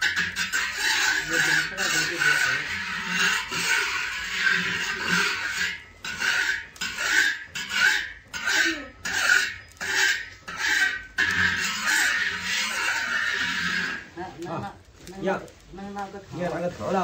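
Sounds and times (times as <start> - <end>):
metal spatula scraping iron wok: 0.0 - 14.8.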